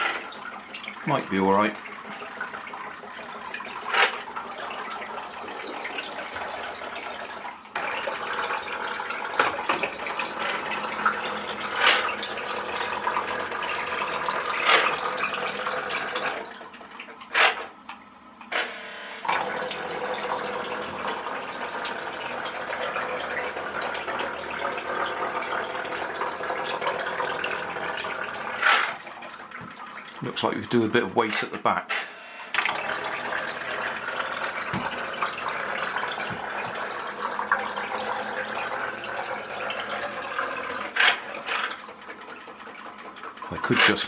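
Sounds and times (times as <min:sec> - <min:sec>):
propeller churning and splashing water: 0:00.0 - 0:17.9, 0:32.5 - 0:44.0
small electric motor running: 0:18.5 - 0:19.3
plastic hull knocks: 0:34.7 - 0:35.0.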